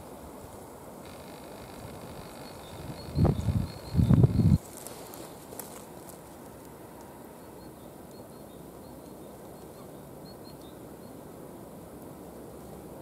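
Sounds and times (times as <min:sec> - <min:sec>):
low background noise: 0:00.0 - 0:13.0
faint distant birds chirping: 0:01.0 - 0:11.9.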